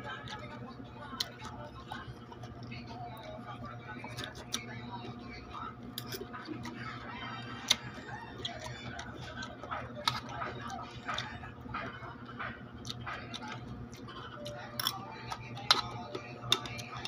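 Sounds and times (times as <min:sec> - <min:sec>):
cucumber crunching: 0:00.0 - 0:17.0.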